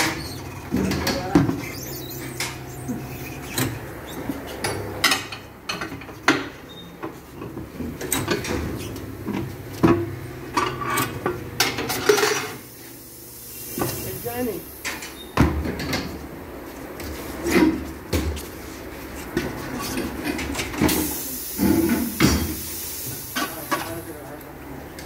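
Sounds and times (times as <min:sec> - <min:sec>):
rubber squeaks: 0:01.6 - 0:04.6.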